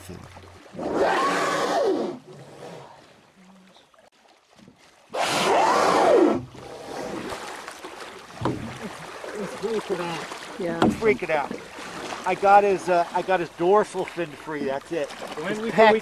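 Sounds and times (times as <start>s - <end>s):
whale blowing: 0.1s - 3.2s, 5.1s - 7.5s.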